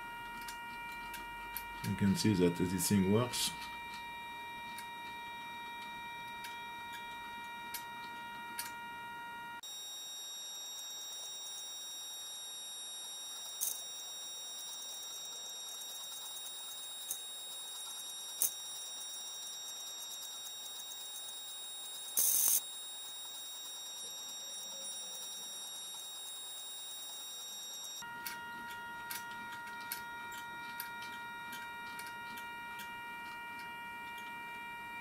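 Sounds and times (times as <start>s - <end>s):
high-pitched electronic whine: 0.0s - 35.0s.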